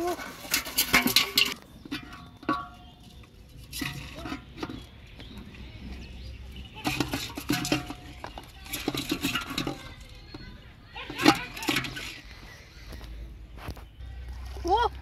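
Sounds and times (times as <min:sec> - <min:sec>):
water splashing in metal pot: 0:00.0 - 0:05.2, 0:06.4 - 0:10.1, 0:11.0 - 0:12.3
knocks against metal pot: 0:00.5 - 0:03.0, 0:06.7 - 0:10.4.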